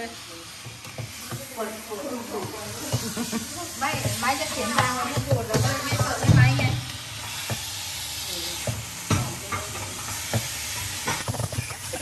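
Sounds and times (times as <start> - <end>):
food sizzling in a pan: 0.0 - 12.0
utensil knocking against pan: 2.4 - 7.6.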